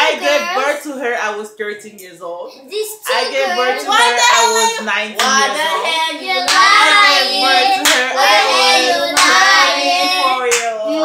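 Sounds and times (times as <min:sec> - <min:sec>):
woman and children singing: 0:03.1 - 0:11.0
sharp hand claps: 0:07.8 - 0:08.1, 0:09.2 - 0:09.5, 0:10.5 - 0:10.8.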